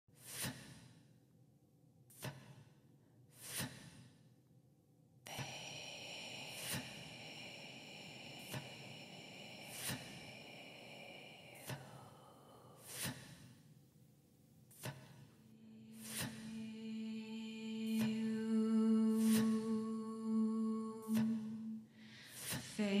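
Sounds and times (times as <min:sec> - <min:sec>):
soft breath-like whooshes: 0:03.4 - 0:04.2, 0:05.3 - 0:13.8, 0:14.7 - 0:18.4, 0:19.1 - 0:19.9, 0:21.0 - 0:22.8.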